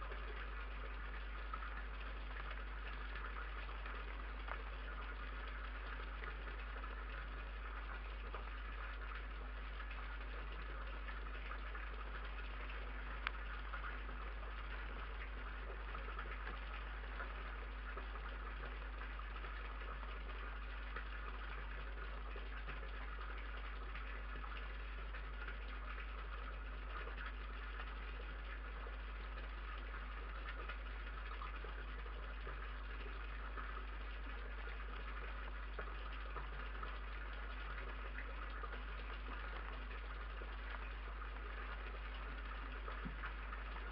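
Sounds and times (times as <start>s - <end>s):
low electrical hum: 0.0s - 43.9s
faint clicks: 13.1s - 13.5s.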